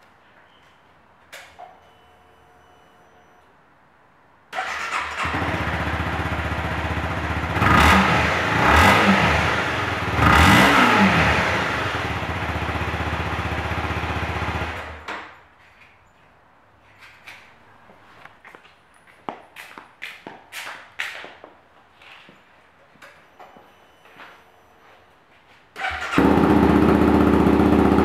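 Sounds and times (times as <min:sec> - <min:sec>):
motorcycle engine starting and idling: 0:04.5 - 0:15.4, 0:25.8 - 0:28.0
engine revving: 0:04.7 - 0:15.0, 0:25.8 - 0:28.0.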